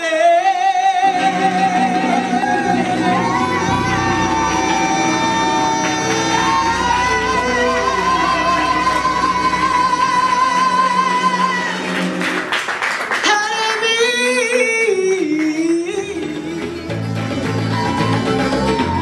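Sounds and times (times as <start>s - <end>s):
woman singing: 0.0s - 12.0s, 13.2s - 17.0s
acoustic guitar: 14.4s - 19.0s.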